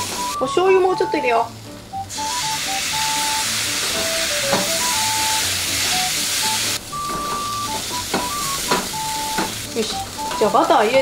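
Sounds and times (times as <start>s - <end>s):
sauce sizzling in frying pan: 1.6s - 11.0s.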